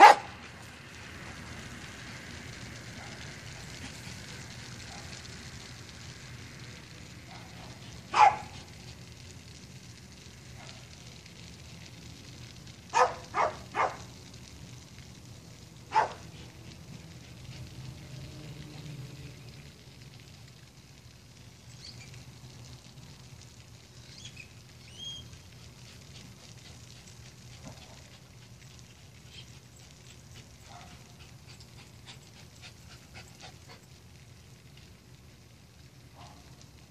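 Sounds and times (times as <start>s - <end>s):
dog barking: 0.0s - 0.3s, 7.3s - 8.6s, 12.9s - 14.0s, 15.9s - 16.2s, 30.7s - 31.0s, 36.2s - 36.4s.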